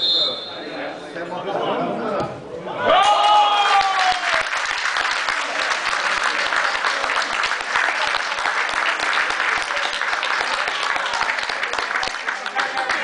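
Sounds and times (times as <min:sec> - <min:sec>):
crowd clapping: 0:03.0 - 0:13.0.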